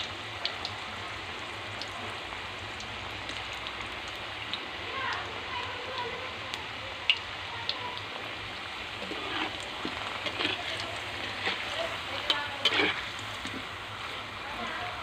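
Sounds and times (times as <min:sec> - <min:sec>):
fries sizzling in hot oil: 0:00.0 - 0:15.0
spatula scraping wok: 0:08.9 - 0:14.3.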